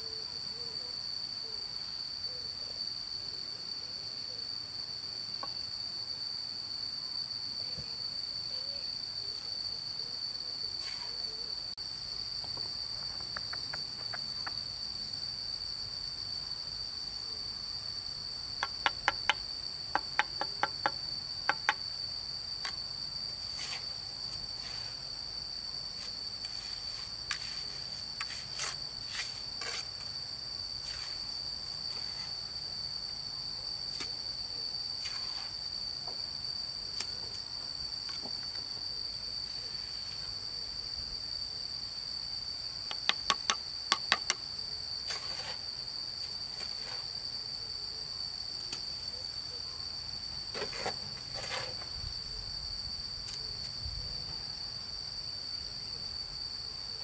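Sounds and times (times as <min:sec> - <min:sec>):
high-pitched insect drone: 0:00.0 - 0:42.2.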